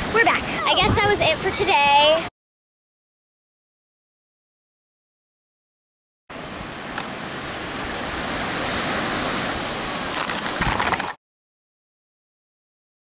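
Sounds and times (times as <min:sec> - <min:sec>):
ocean surf washing on beach: 0:00.0 - 0:02.3, 0:06.3 - 0:11.2.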